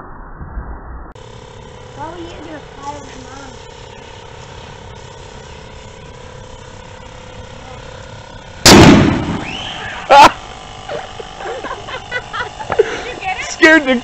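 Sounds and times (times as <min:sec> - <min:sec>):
faint steady hum: 0:01.2 - 0:14.0
basketball bursting with loud bang: 0:08.6 - 0:10.1.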